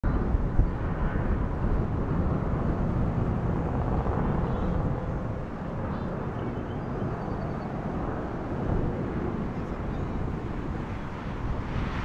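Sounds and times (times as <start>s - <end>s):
distant jet engines rumbling: 0.1s - 12.0s.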